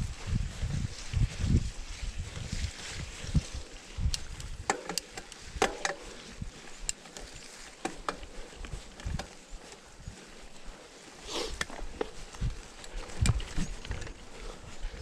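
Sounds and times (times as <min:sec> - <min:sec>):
bike clicks and knocks: 0:04.0 - 0:09.9, 0:11.5 - 0:15.0.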